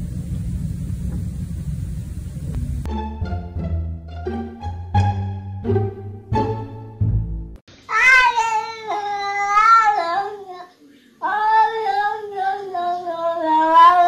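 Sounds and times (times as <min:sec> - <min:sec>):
plucked-string music: 0:02.9 - 0:07.6
cat meowing: 0:07.9 - 0:10.6.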